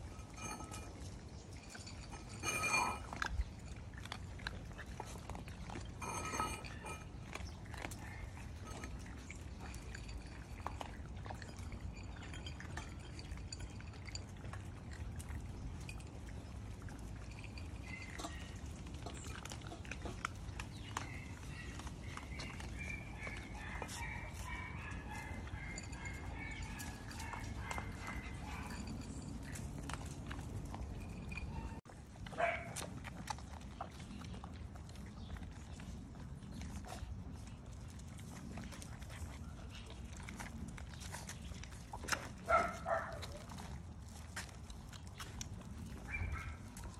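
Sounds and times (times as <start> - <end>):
kibble clicking against bowls: 0.0 - 46.9
puppies chewing wetly: 0.0 - 46.9.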